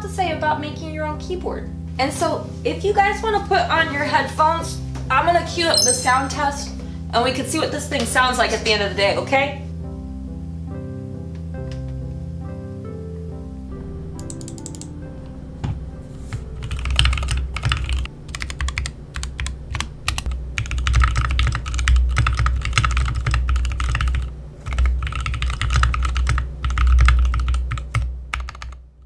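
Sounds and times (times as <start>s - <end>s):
mechanical keyboard typing: 13.7s - 29.0s.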